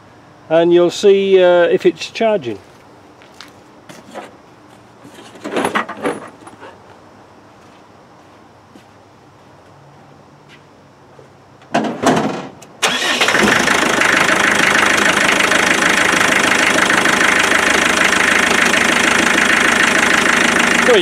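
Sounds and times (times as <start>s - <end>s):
diesel engine cranking and idling: 12.7s - 21.0s.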